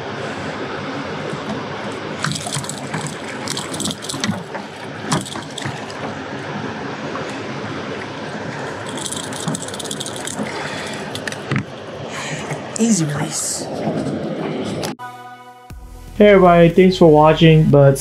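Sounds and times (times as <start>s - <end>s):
water rushing from spillway: 1.1s - 12.9s
fish splashing: 1.5s - 11.8s
rattling clicks: 2.2s - 6.2s, 8.7s - 11.7s.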